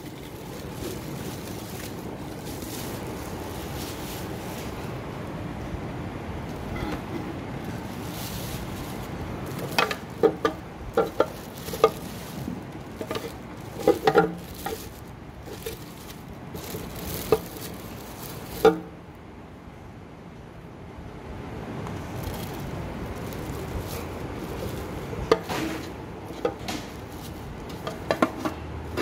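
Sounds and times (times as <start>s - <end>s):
plastic parts clicking and knocking: 9.5s - 12.3s, 12.9s - 17.9s, 23.2s - 29.0s.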